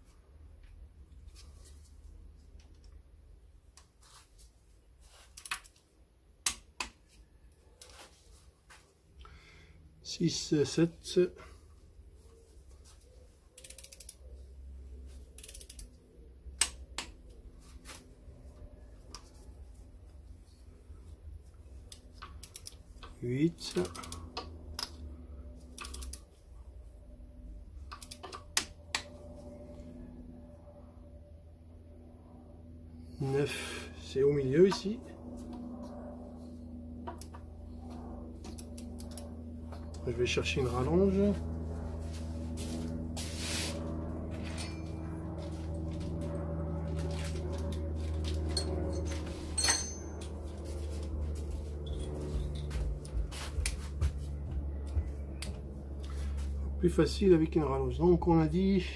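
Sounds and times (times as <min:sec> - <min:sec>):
low background hum: 0:00.0 - 0:58.9
torque wrench clicks: 0:13.6 - 0:14.2, 0:15.4 - 0:15.9, 0:25.8 - 0:26.2
small clicks: 0:25.7 - 0:26.2.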